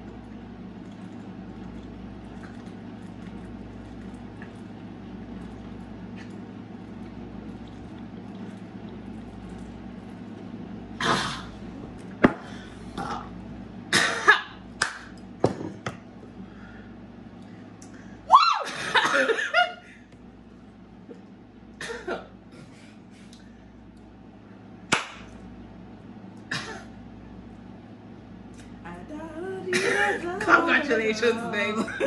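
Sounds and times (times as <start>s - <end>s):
low room hum: 0.0s - 32.0s
woman coughing and gasping: 13.9s - 14.5s, 18.8s - 19.6s, 21.8s - 22.3s, 26.5s - 26.9s, 29.7s - 30.2s.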